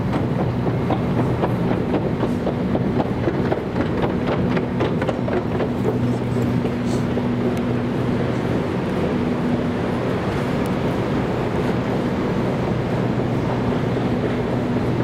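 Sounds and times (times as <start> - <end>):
escalator mechanical hum: 0.0 - 15.0
irregular clicking clatter: 0.1 - 7.7.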